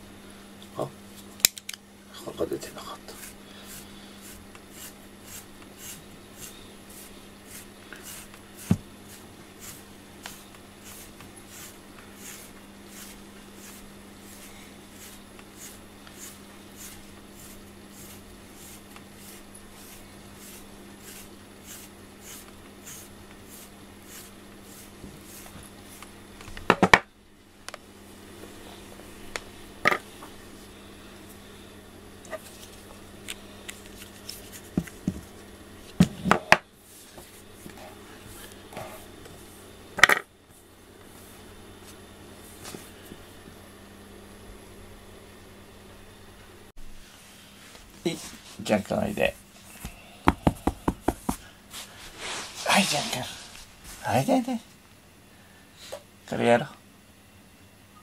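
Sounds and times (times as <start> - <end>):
brush scratching through fur: 2.8 - 26.1, 51.1 - 54.1.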